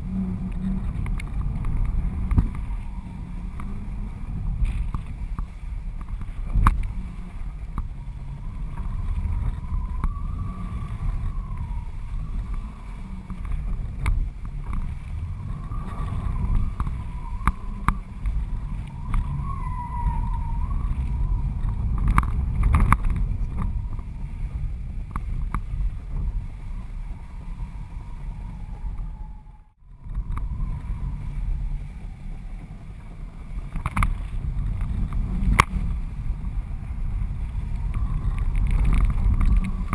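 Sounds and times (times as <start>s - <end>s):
wind buffeting camera: 0.0s - 39.9s
faint wavering whistle: 6.9s - 14.0s, 15.1s - 22.2s, 26.4s - 32.9s.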